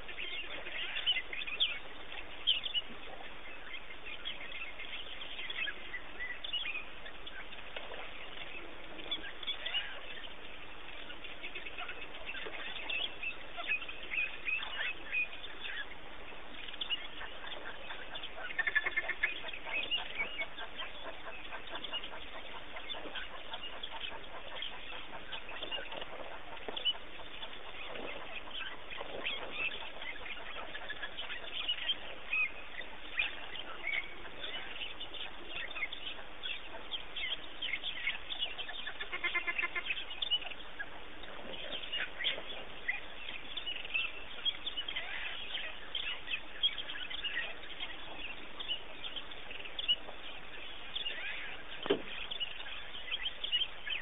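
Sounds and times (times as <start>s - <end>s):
wild dogs twittering calls: 11.3s - 54.0s.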